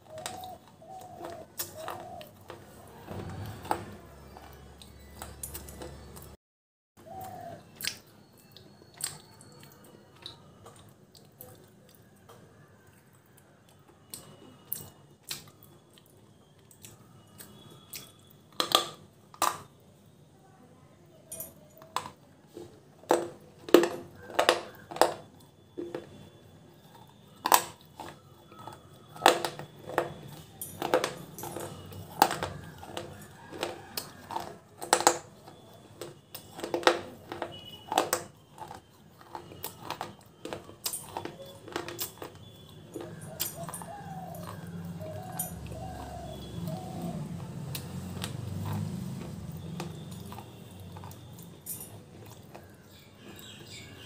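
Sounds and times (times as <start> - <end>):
brittle crunching bites: 23.1 - 53.9.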